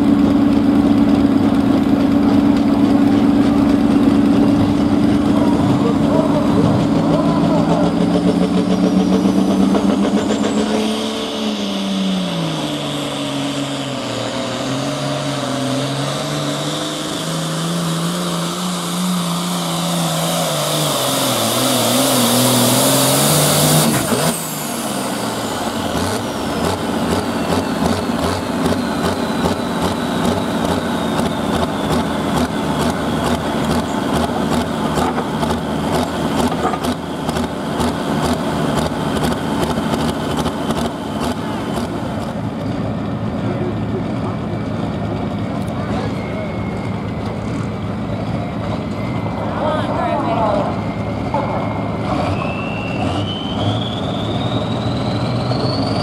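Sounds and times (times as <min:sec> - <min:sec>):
diesel engine idling: 0:00.0 - 0:21.6, 0:24.4 - 0:56.0
tractor diesel engine at full throttle: 0:00.0 - 0:56.0
high whistle: 0:46.0 - 0:47.1, 0:50.6 - 0:56.0.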